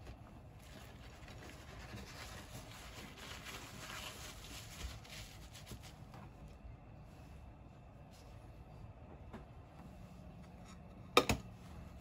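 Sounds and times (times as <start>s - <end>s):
kitchen paper rustling: 0.0s - 7.2s.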